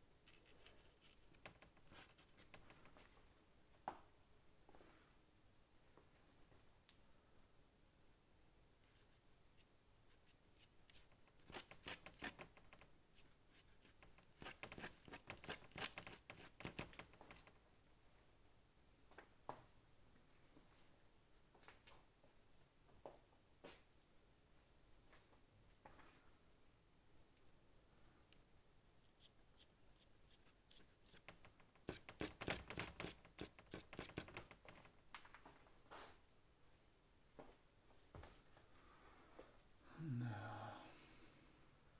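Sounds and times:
paintbrush scratching on paper: 0.3s - 3.0s, 8.9s - 12.8s, 13.5s - 17.3s, 29.0s - 34.9s.

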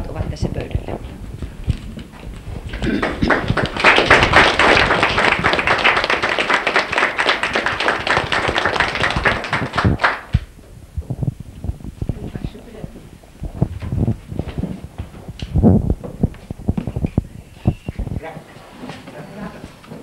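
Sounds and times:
crowd applauding: 2.7s - 10.5s.

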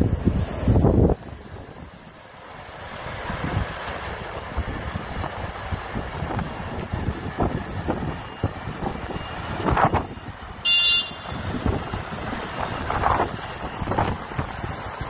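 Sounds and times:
wind buffeting the microphone: 0.0s - 15.0s
loud high-pitched beep: 10.7s - 11.3s.

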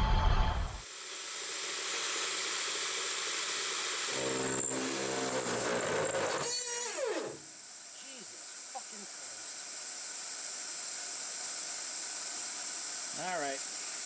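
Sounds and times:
metal lathe running: 4.1s - 6.5s.

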